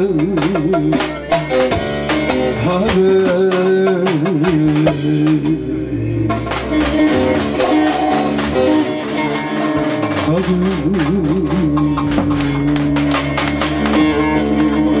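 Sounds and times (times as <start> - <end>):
beat: 0.0 - 15.0
plucked and strummed long-necked lute: 5.3 - 15.0.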